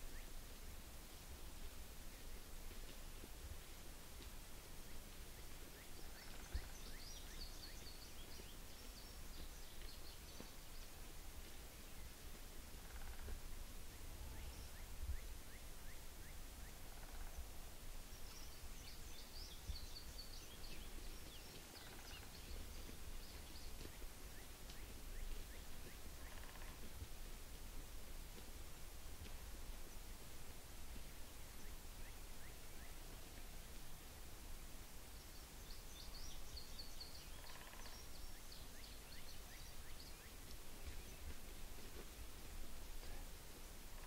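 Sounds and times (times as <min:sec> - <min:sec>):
songbird singing: 0:00.0 - 0:44.0
low rattling bird call: 0:37.3 - 0:38.1.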